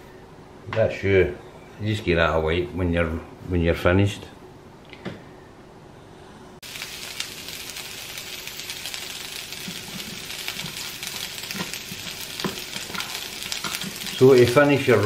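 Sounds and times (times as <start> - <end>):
vegetables sizzling in a frying pan: 6.6 - 15.0.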